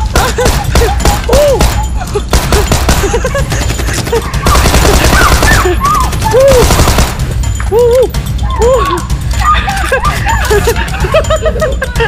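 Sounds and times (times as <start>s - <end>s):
machine-gun fire sound effects: 0.1s - 7.4s.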